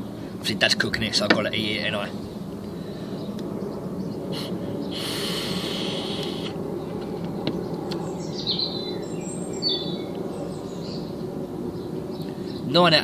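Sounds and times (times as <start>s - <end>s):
bird chirps: 3.0s - 12.8s
person exhaling: 4.3s - 6.6s
e-cigarette draw hiss: 4.4s - 6.6s.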